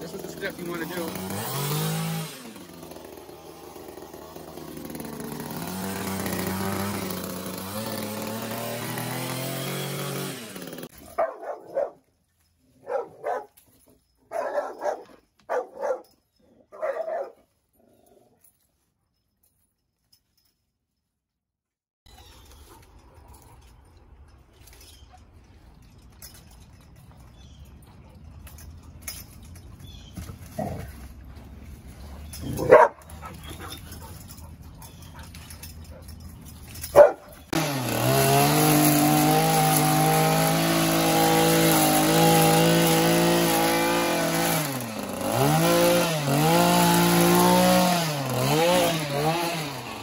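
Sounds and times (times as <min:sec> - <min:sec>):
string trimmer running: 0:00.0 - 0:11.9, 0:28.5 - 0:50.0
dog barking: 0:11.1 - 0:12.0, 0:12.8 - 0:13.6, 0:14.3 - 0:16.1, 0:16.7 - 0:17.4, 0:32.5 - 0:34.2, 0:36.9 - 0:37.3.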